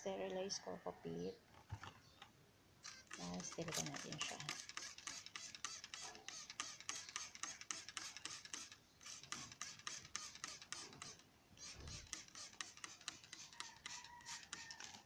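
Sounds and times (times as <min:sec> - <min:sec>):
potting medium crackling and scraping: 0:00.0 - 0:09.7.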